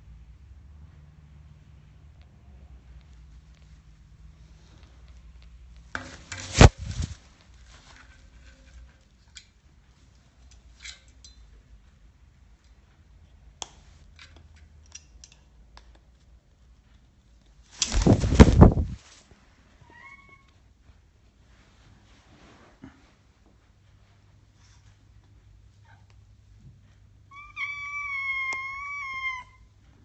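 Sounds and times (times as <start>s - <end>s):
parrot brushing against microphone: 6.0s - 8.4s, 17.8s - 19.3s
wings flapping: 6.3s - 7.2s, 17.8s - 19.1s.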